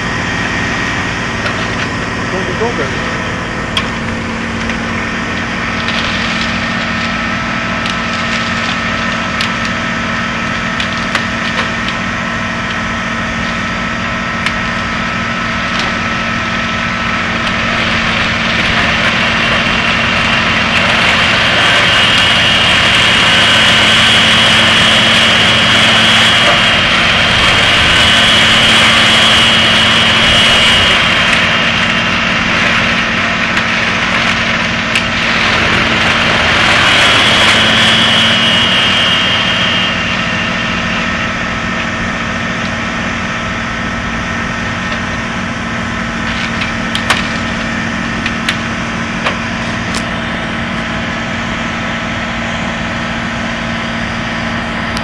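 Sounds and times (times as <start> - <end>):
tractor diesel engine: 0.0 - 55.0
wood chipper chipping branches: 0.0 - 55.0
wood cracking: 3.6 - 9.9, 15.7 - 38.1, 46.2 - 48.6.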